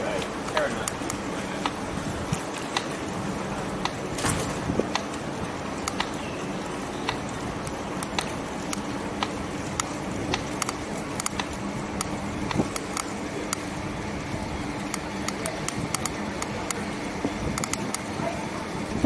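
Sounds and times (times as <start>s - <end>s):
road and wind noise: 0.0s - 19.0s
sharp irregular clicks: 0.2s - 3.1s, 3.7s - 4.1s, 4.8s - 6.3s, 6.9s - 13.8s, 14.8s - 18.2s.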